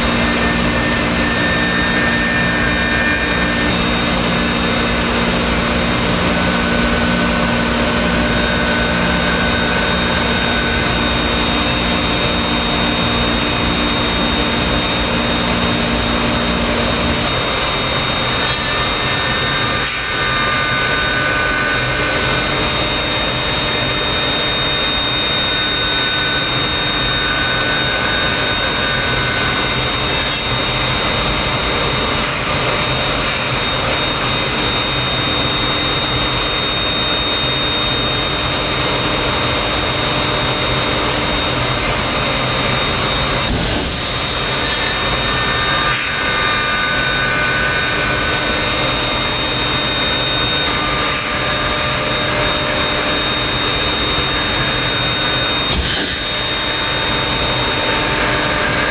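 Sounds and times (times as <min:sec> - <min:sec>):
cnc router spindle whine: 0:00.0 - 0:58.9.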